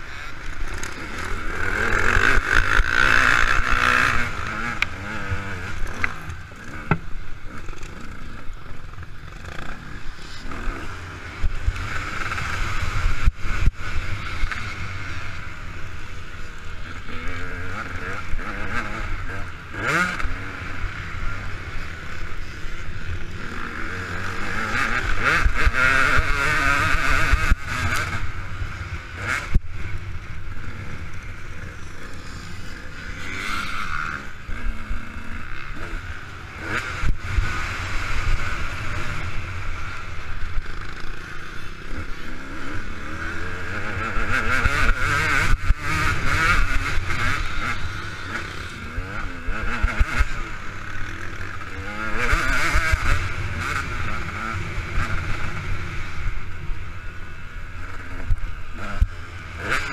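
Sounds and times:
dirt bike engine revving: 0:00.0 - 0:59.9.

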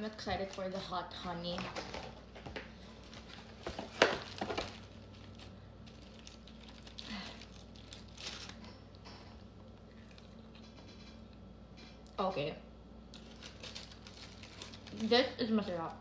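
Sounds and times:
paper liner crinkling: 0:02.8 - 0:09.0, 0:13.1 - 0:15.9.

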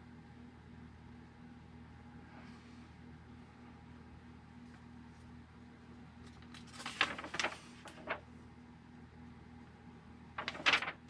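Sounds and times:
paper pages rustling: 0:06.2 - 0:08.2, 0:10.4 - 0:11.0.

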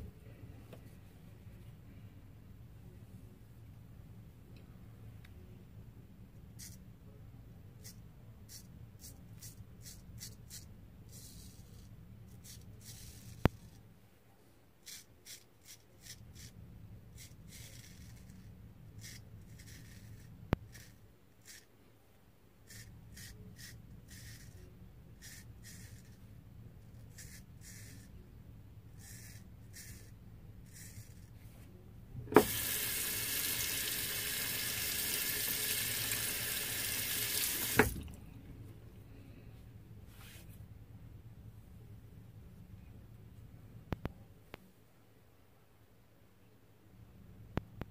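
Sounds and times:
water running into sink: 0:32.3 - 0:38.2.

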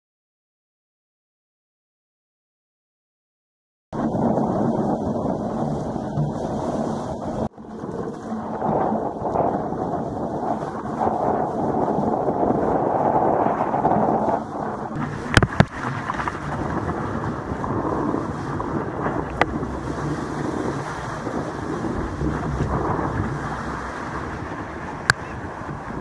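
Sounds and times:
surf water rushing and splashing: 0:04.0 - 0:26.0
wind buffeting microphone: 0:04.0 - 0:26.0.

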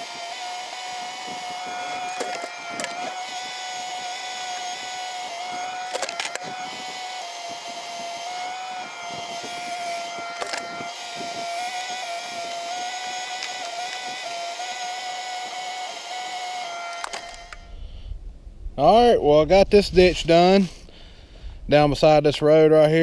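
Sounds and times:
mini excavator whining: 0:00.0 - 0:18.0.

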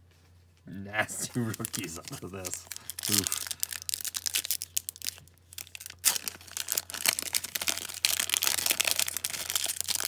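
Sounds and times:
foil wrapper tearing and crinkling: 0:01.3 - 0:10.0.

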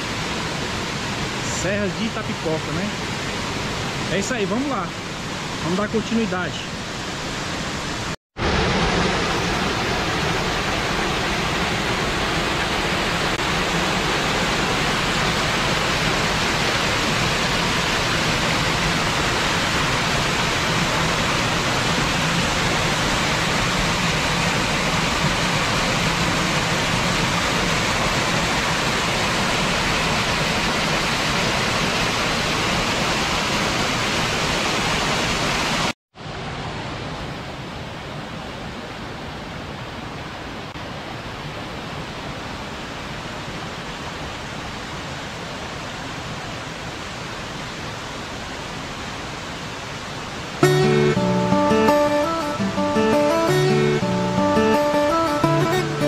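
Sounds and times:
loud steady rushing noise: 0:00.0 - 0:37.2, 0:50.2 - 0:56.0.

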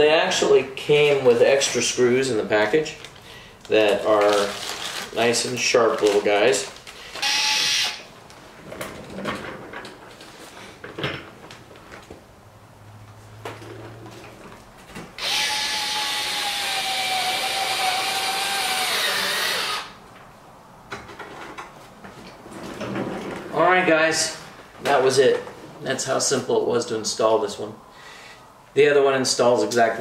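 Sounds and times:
cordless drill running: 0:07.1 - 0:08.0, 0:15.2 - 0:20.0.

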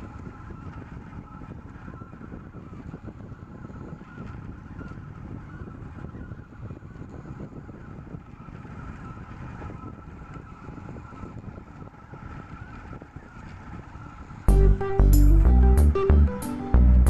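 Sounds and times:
loud guitar music: 0:14.5 - 0:17.0.

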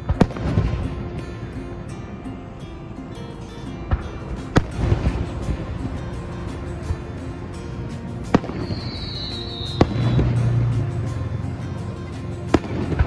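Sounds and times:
high firework whistle: 0:08.3 - 0:10.6.

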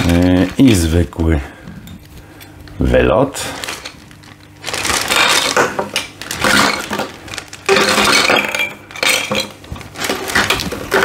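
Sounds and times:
plastic bag crinkling: 0:00.0 - 0:01.4, 0:02.0 - 0:11.0
plastic parts clinking: 0:03.6 - 0:11.0.

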